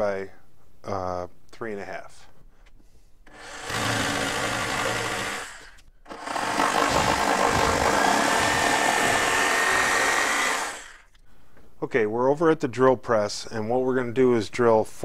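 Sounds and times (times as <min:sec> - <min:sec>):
jigsaw cutting particleboard: 0:03.3 - 0:11.1.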